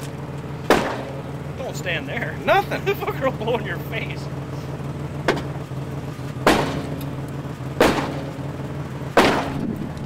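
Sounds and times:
hammer striking car metal: 0:00.6 - 0:01.3, 0:05.2 - 0:05.6, 0:06.4 - 0:08.5, 0:09.1 - 0:09.8.

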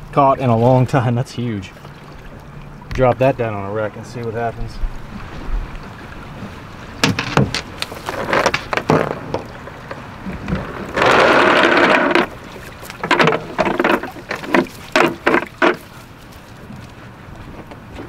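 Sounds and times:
rushing water: 0:00.0 - 0:18.0
weighted line clicking on deck: 0:07.0 - 0:16.0.

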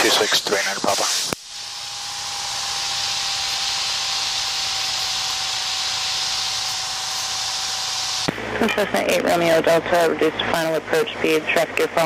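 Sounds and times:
radio hiss: 0:00.0 - 0:01.5.

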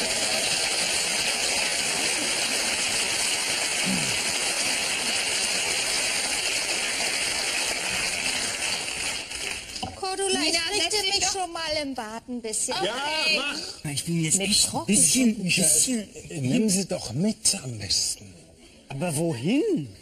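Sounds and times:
loud hiss-like noise: 0:00.0 - 0:09.8.

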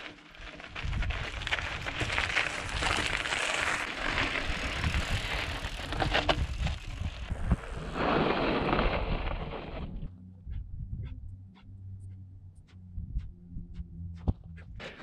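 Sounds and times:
bike rattling and knocking: 0:00.0 - 0:07.3
bike tyres crunching on gravel: 0:00.0 - 0:09.8.

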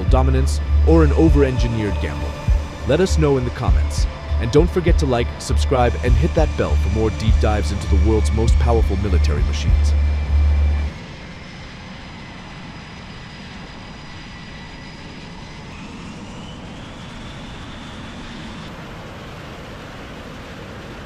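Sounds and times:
thin whine rising in pitch: 0:00.0 - 0:20.2
jet engine rumble and hiss: 0:00.0 - 0:21.0.

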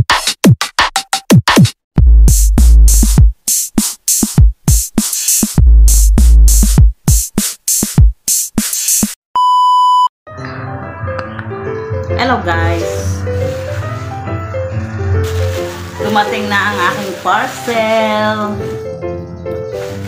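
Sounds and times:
electronic music with drum beat: 0:00.0 - 0:09.2
high beep: 0:09.4 - 0:10.1.

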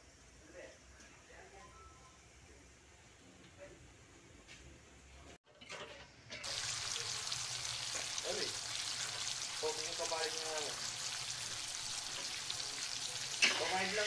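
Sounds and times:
garlic sizzling in butter: 0:06.3 - 0:14.0.

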